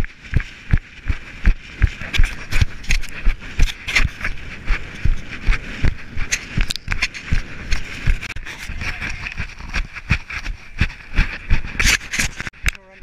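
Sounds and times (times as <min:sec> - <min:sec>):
footsteps jogging on grass: 0:00.0 - 0:12.6.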